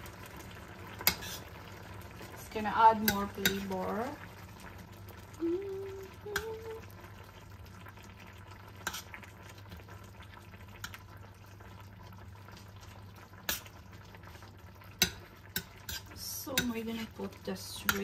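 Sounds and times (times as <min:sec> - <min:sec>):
curry simmering in a pan: 0:00.0 - 0:18.0
metal spoon clicking against pan: 0:03.0 - 0:03.7.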